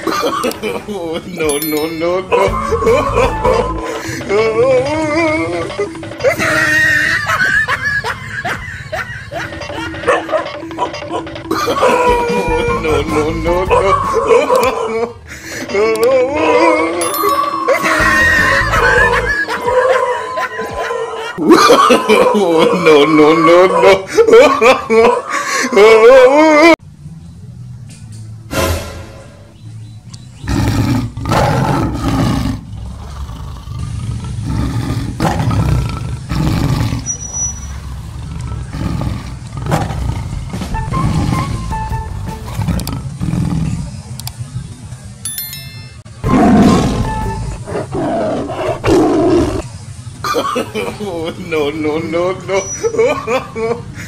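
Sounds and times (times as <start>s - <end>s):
background music: 1.5s - 20.4s, 39.5s - 43.2s
tiger roars: 30.4s - 41.4s, 42.5s - 44.0s, 46.3s - 49.7s.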